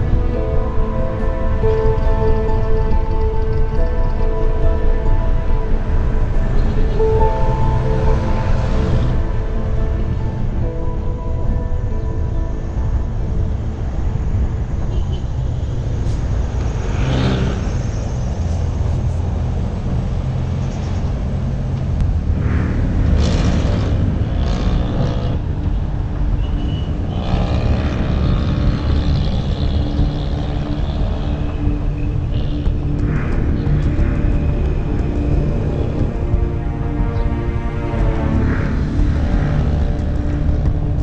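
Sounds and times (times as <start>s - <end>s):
vehicles passing close: 0.0s - 41.0s
wind and road noise rumble: 0.0s - 41.0s.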